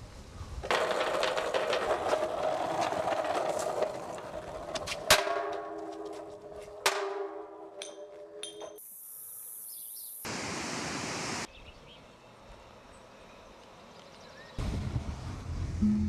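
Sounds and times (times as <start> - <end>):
skateboard wheels rolling on concrete: 0.0 - 7.8.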